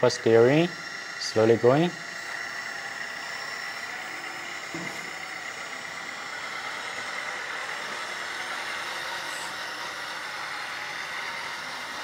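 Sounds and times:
electric hydraulic pump whining: 0:00.0 - 0:12.0
simulated truck engine sound: 0:00.0 - 0:12.0.

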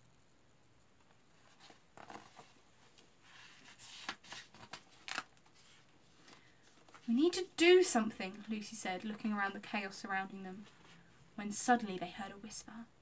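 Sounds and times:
book being handled: 0:01.4 - 0:07.3.

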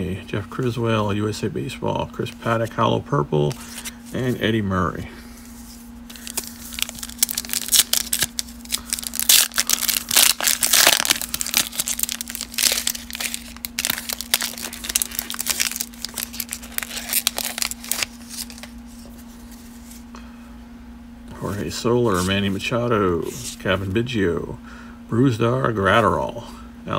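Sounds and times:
foil tearing: 0:06.1 - 0:19.2
foil wrapper crinkling: 0:06.1 - 0:20.0.

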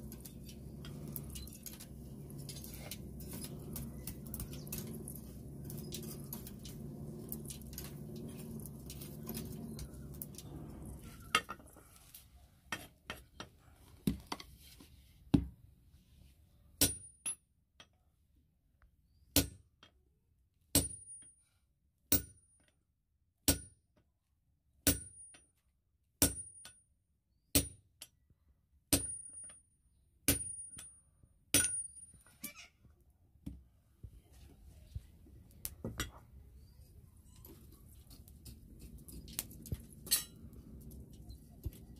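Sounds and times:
metal tools clinking: 0:37.3 - 0:41.3.

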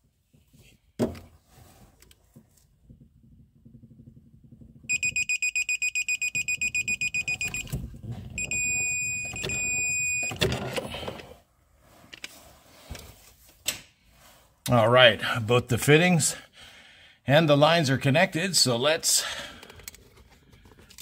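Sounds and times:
long steady beeps: 0:04.9 - 0:07.8, 0:08.4 - 0:10.4.

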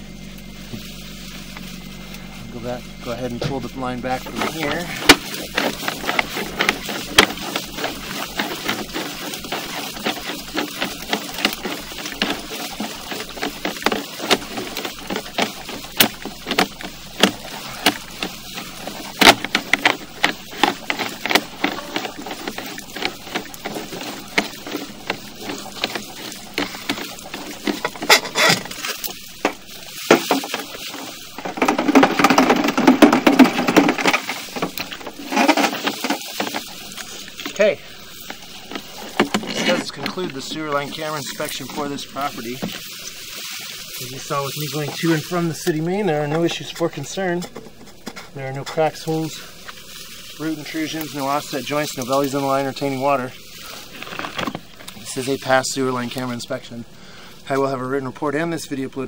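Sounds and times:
rough scraping: 0:00.0 - 0:59.0
push cable clicking and knocking: 0:04.4 - 0:30.8.

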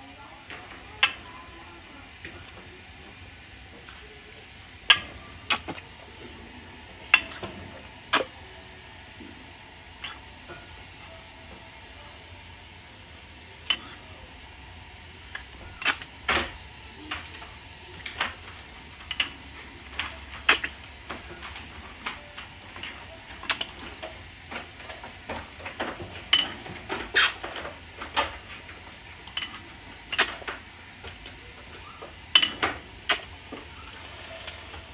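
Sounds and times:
low steady hum: 0:00.0 - 0:34.9.

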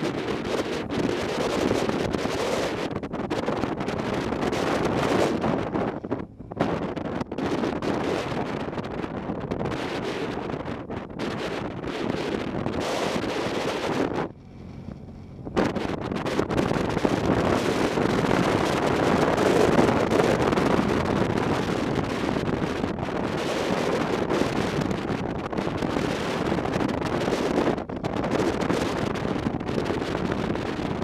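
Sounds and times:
wind rushing over microphone: 0:00.0 - 0:31.0
motorcycle running: 0:12.2 - 0:30.8.

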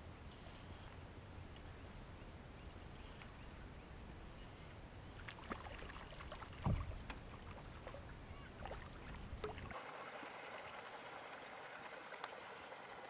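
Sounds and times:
low thump on kayak: 0:06.6 - 0:07.0.

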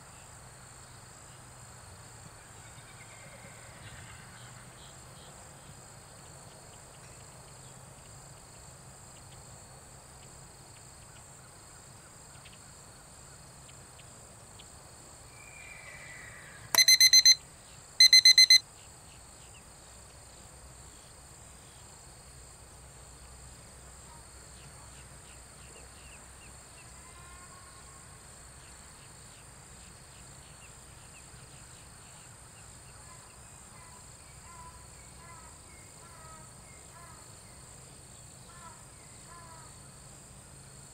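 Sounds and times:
pulsing electronic beeps: 0:16.8 - 0:17.4, 0:18.0 - 0:18.6.

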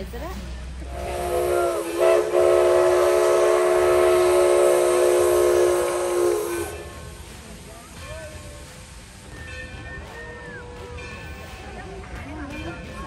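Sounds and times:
steam locomotive whistle: 0:00.8 - 0:07.2, 0:08.0 - 0:11.8.

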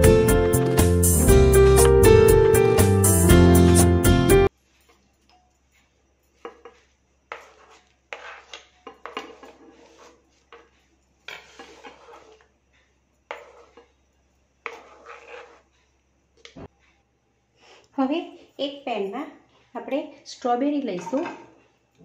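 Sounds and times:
strawberries scraped off chopping board: 0:06.4 - 0:12.5, 0:13.3 - 0:13.9, 0:14.6 - 0:15.8.

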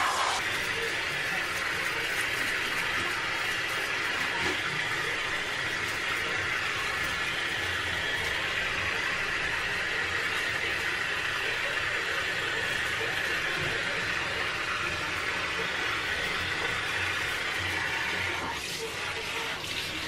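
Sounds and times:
shower water splashing: 0:12.6 - 0:20.0.

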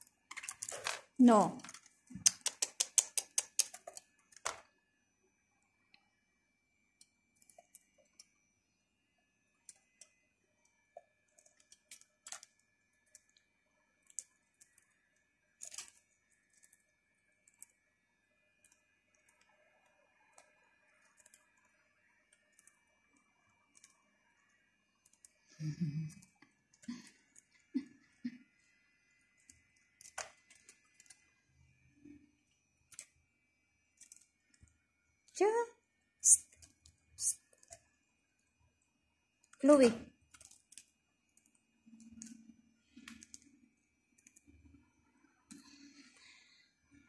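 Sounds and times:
budgerigars clicking and tapping: 0:02.2 - 0:04.6.

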